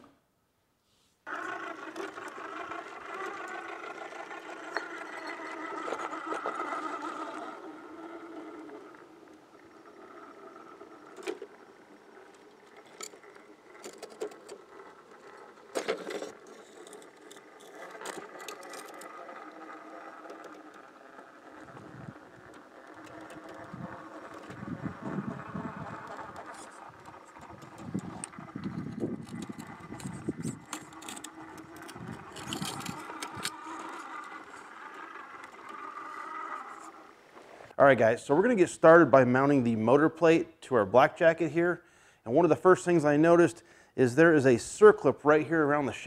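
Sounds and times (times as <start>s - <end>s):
rc car motor whining: 1.2s - 37.8s.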